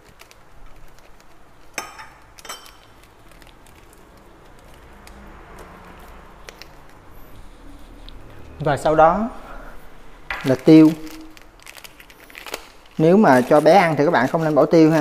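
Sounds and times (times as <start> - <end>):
metal spoon clinking ceramic bowl: 1.8 - 2.9.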